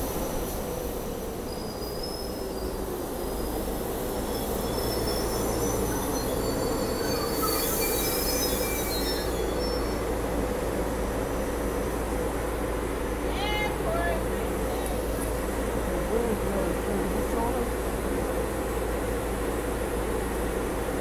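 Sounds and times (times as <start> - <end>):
train wheels squealing: 0.0 - 10.7
train rumble: 0.0 - 21.0.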